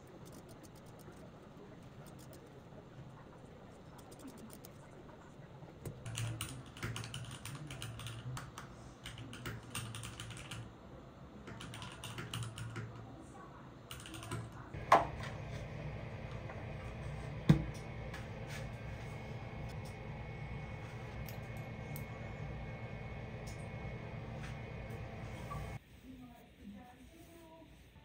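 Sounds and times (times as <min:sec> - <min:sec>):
mechanical keyboard typing: 0:00.2 - 0:01.2, 0:06.0 - 0:10.7, 0:11.5 - 0:13.0, 0:13.9 - 0:14.6.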